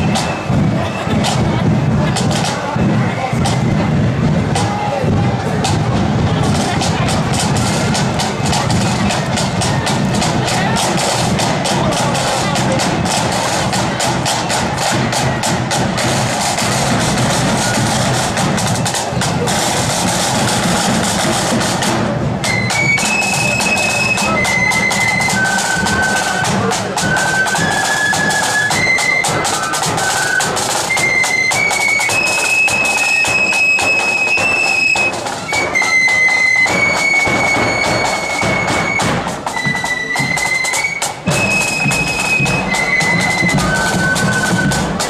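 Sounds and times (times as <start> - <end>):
flutes playing in unison: 0.0 - 45.0
side drums: 0.0 - 45.0
bass drum beating: 0.5 - 22.4.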